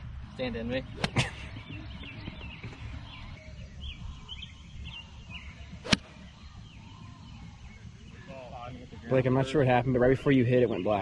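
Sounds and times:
birds chirping: 0:00.0 - 0:11.0
golf club striking ball: 0:01.0 - 0:01.3, 0:05.8 - 0:06.2.

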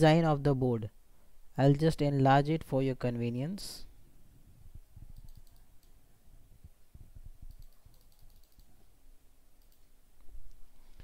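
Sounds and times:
computer mouse clicking: 0:05.1 - 0:06.0, 0:07.4 - 0:08.8, 0:09.6 - 0:09.9.

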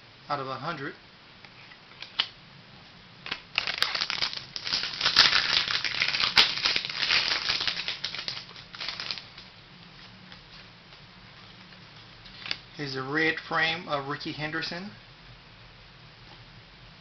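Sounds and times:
cards crinkling and rustling: 0:03.2 - 0:09.5.

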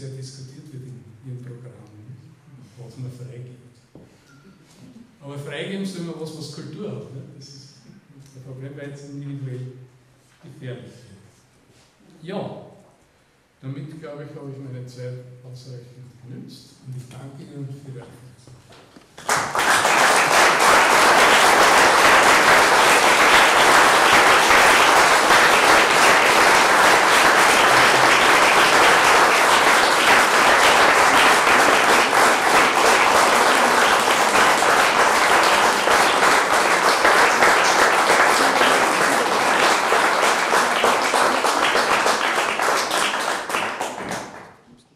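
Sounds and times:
audience applauding: 0:19.2 - 0:44.6.

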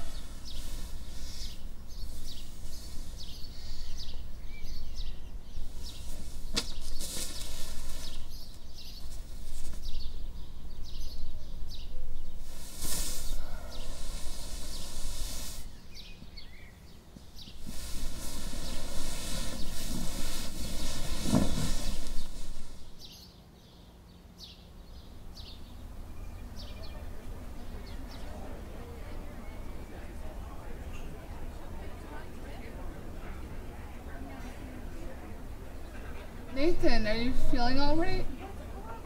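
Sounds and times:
bursts of hiss: 0:00.0 - 0:04.1, 0:12.4 - 0:16.1, 0:17.4 - 0:23.1
songbirds chirping: 0:00.0 - 0:39.0
steady low hum: 0:00.0 - 0:39.0.

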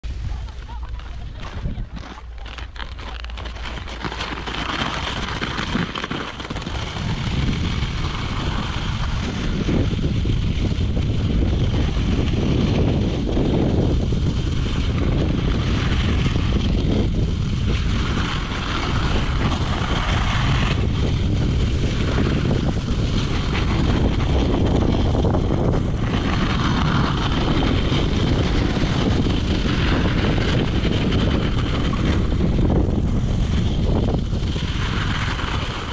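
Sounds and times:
skates sliding on packed snow: 0:00.0 - 0:35.9
wind buffeting microphone: 0:00.0 - 0:35.9.

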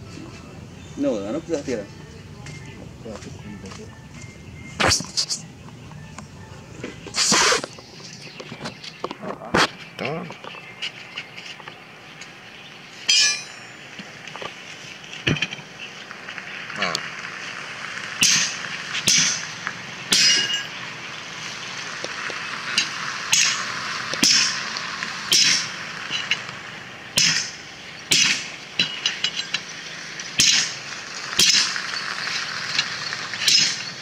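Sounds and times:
sledgehammer clanking on steel: 0:13.1 - 0:13.8, 0:18.2 - 0:19.4, 0:20.1 - 0:20.8, 0:22.7 - 0:24.6, 0:25.3 - 0:26.5, 0:27.1 - 0:30.8, 0:31.4 - 0:34.0.

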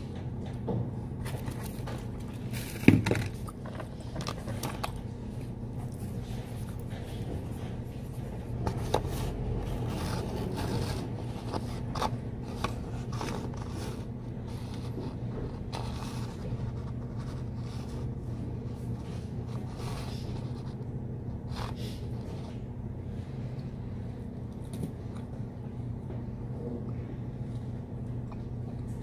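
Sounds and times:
steady low hum: 0:00.0 - 0:29.0
paper handling: 0:01.2 - 0:22.6
pen scratching on paper: 0:08.7 - 0:18.2.

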